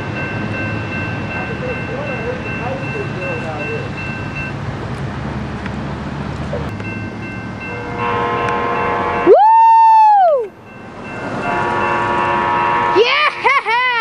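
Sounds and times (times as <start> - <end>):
train air horn blast: 7.7 - 9.3, 11.4 - 13.1.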